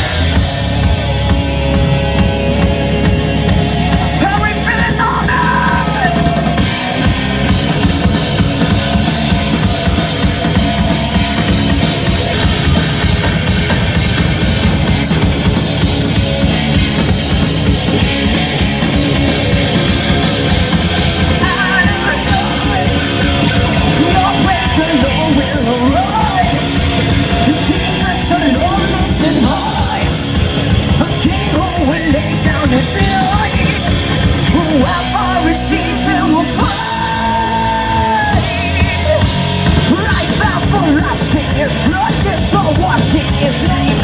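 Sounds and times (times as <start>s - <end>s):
rock band playing: 0.0s - 44.0s
man singing: 4.2s - 6.6s, 21.2s - 44.0s.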